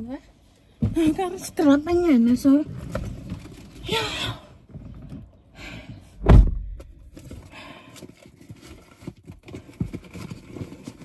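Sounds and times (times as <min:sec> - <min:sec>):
heavy thump: 0:06.2 - 0:07.0.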